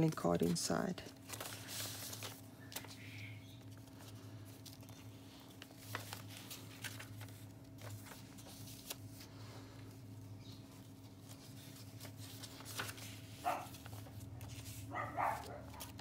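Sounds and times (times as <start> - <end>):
paper rustling and tapping: 0.0 - 9.2, 10.9 - 16.0
steady low hum: 0.0 - 16.0
page turning: 0.1 - 16.0.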